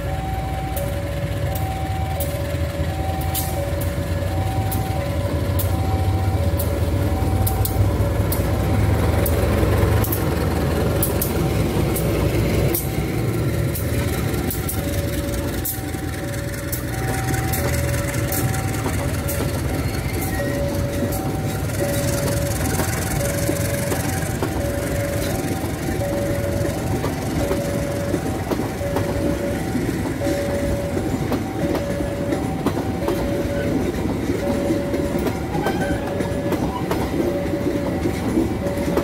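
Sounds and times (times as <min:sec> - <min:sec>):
two-tone electronic warning alarm: 0:00.0 - 0:10.4, 0:11.0 - 0:39.0
diesel locomotive rumbling past: 0:00.0 - 0:39.0
wheels clicking over rail joints: 0:00.0 - 0:39.0.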